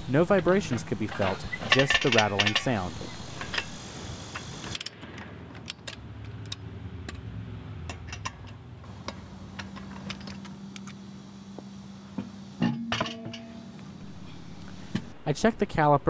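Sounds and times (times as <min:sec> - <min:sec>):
low steady hum: 0:00.0 - 0:16.0
brake pad clicking and rattling: 0:00.6 - 0:11.0.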